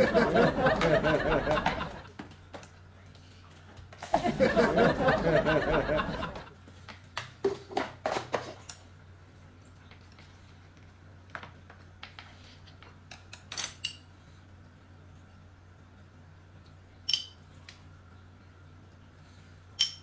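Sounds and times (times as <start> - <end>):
gleeful laughter: 0.0 - 2.1, 4.2 - 6.5.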